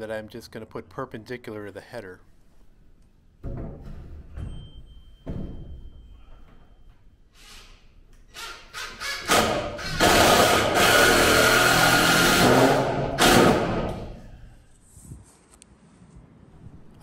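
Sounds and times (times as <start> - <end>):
cordless drill driving screw: 7.4 - 14.0.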